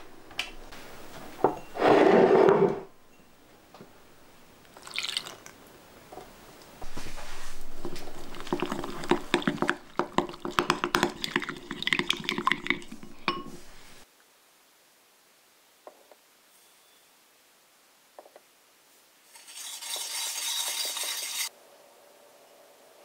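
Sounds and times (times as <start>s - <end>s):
milk pouring into bowl: 4.7s - 5.6s, 7.6s - 13.5s
spoon clinking against glass: 8.2s - 13.7s.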